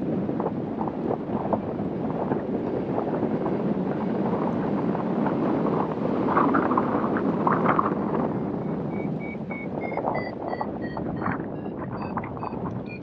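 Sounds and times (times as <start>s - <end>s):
airflow rushing over microphone: 4.3s - 13.0s
variometer short high beeps: 8.6s - 13.0s.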